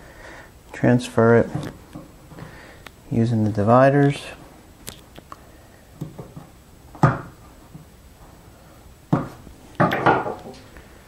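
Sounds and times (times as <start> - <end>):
sharp wooden knocks: 7.0 - 7.4, 9.1 - 10.6.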